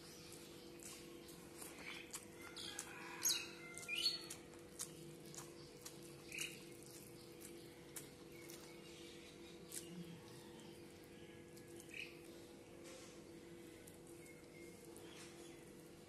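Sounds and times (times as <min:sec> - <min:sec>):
faint steady hum: 0:00.0 - 0:16.0
wet chewing and lip smacks: 0:00.1 - 0:08.9, 0:09.5 - 0:12.3.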